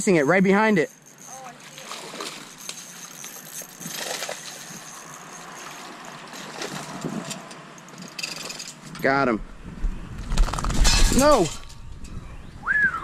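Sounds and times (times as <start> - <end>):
fish splashing at water surface: 1.6 - 7.0.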